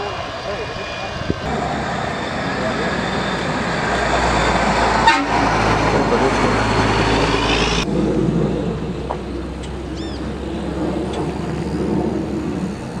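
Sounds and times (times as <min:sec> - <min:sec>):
high whine: 0:00.0 - 0:13.0
jet engine rumble overhead: 0:00.0 - 0:13.0
short bird-like chirp: 0:10.0 - 0:10.2.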